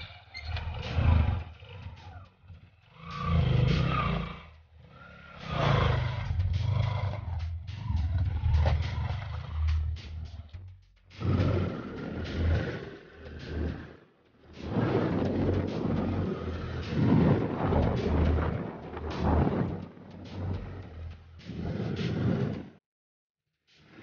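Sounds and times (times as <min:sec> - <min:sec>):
small motorcycle engine revving: 0:00.0 - 0:10.2.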